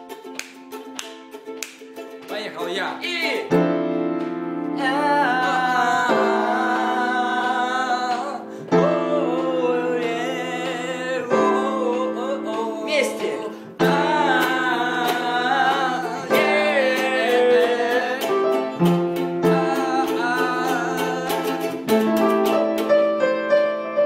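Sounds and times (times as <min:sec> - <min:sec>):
ukulele strumming: 0:00.0 - 0:24.0
man singing wordless melody: 0:04.8 - 0:22.3.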